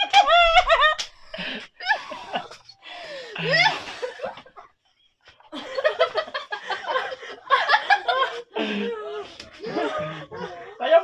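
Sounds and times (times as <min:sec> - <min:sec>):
group of people laughing: 0:00.0 - 0:11.0.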